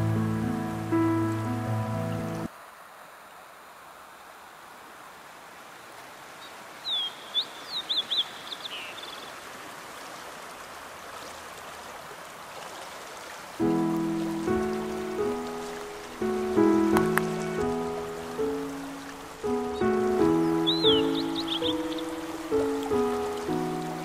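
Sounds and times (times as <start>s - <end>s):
flowing river water: 0.0s - 24.0s
bird chirping: 6.4s - 9.4s, 14.1s - 24.0s.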